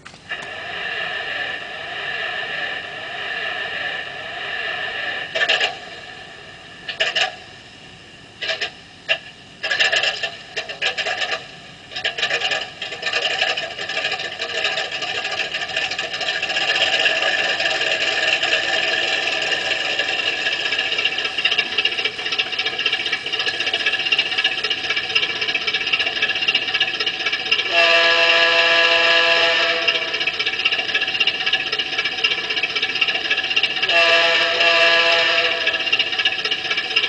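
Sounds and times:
model locomotive engine sound: 0:00.0 - 0:37.0
locomotive horn blast: 0:27.7 - 0:30.2, 0:33.9 - 0:35.9.

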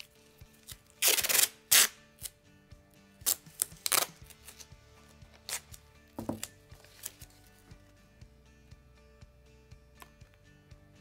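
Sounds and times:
masking tape pulled and torn: 0:00.0 - 0:02.4, 0:03.2 - 0:04.7, 0:05.4 - 0:07.3.

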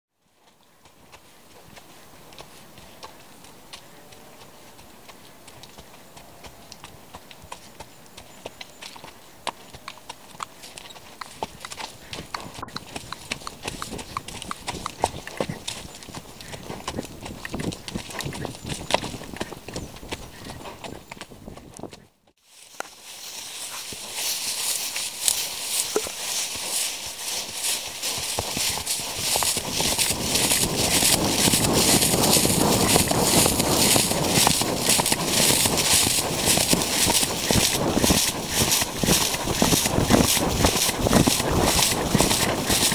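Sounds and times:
horse hoofbeats on dirt: 0:00.2 - 0:22.2, 0:22.8 - 0:42.9
wind buffeting microphone: 0:11.3 - 0:22.1, 0:28.0 - 0:42.9.

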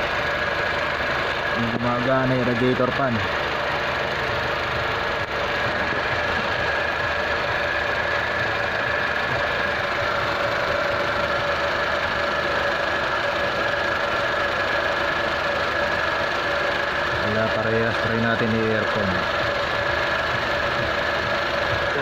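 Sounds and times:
car engine idling: 0:00.0 - 0:22.0
steady whine: 0:00.0 - 0:22.0.

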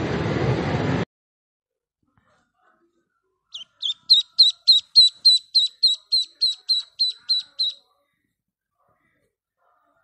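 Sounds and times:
bird chirping: 0:03.5 - 0:07.9.

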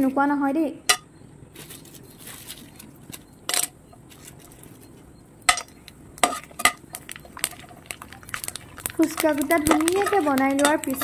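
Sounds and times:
dough frying in hot oil: 0:03.9 - 0:11.0.

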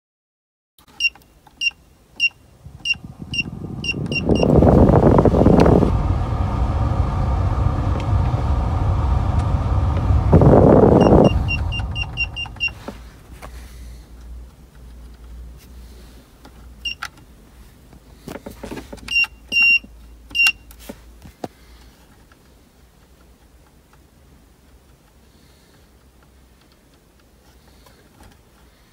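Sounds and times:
short electronic beeps: 0:01.0 - 0:04.6, 0:11.0 - 0:12.8, 0:19.1 - 0:20.6
blower fan air rush: 0:02.5 - 0:14.2.

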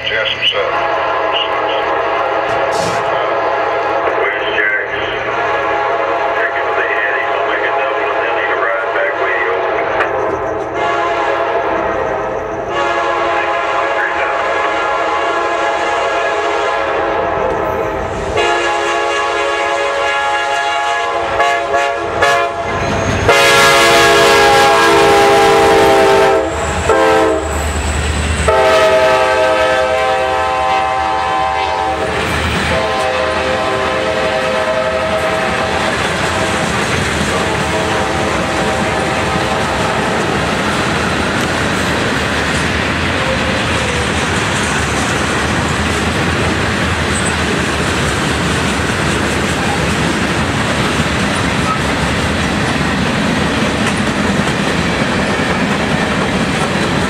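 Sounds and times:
locomotive air horn blasts: 0:00.7 - 0:04.2, 0:05.2 - 0:10.1, 0:10.7 - 0:17.8, 0:18.4 - 0:27.7, 0:28.4 - 0:36.7, 0:37.3 - 0:40.3
freight cars rolling on rails: 0:24.2 - 0:57.0.

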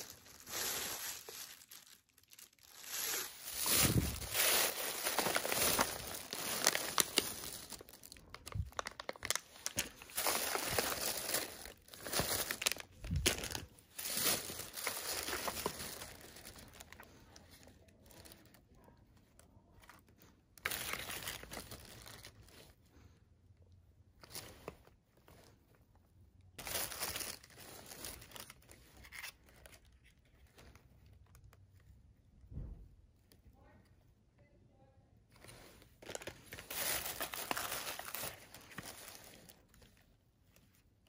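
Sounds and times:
plastic bags crinkling: 0:00.0 - 0:18.8, 0:20.2 - 0:22.7, 0:26.6 - 0:31.4, 0:35.4 - 0:40.0.

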